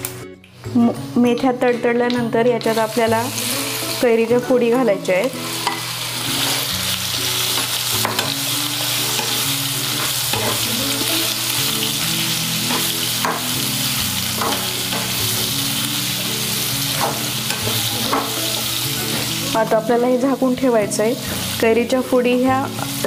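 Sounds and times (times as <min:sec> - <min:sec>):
food sizzling in hot oil: 0:02.5 - 0:23.0
spatula scraping a pan: 0:07.5 - 0:11.2.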